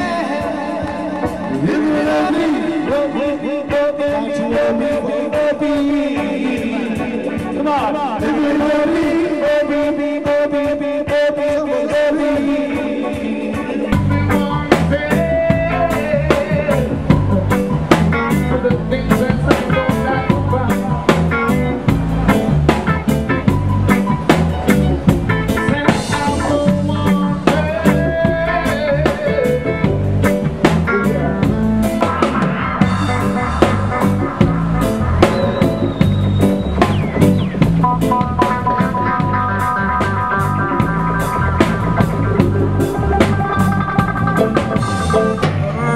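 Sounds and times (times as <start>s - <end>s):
bass: 0.0s - 45.9s
drum kit: 0.0s - 45.9s
guitar: 0.0s - 45.9s.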